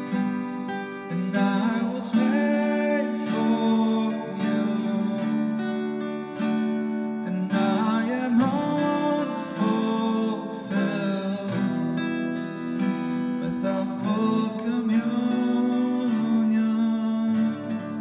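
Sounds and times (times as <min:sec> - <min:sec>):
acoustic guitar strummed: 0:00.0 - 0:18.0
person singing: 0:00.0 - 0:18.0.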